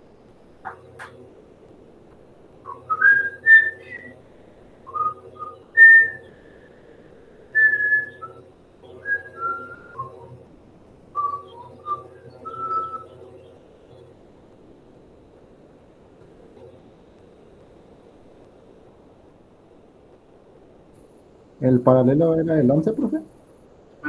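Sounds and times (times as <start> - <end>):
person whistling a tune: 2.7 - 4.1, 4.9 - 6.3, 7.6 - 8.4.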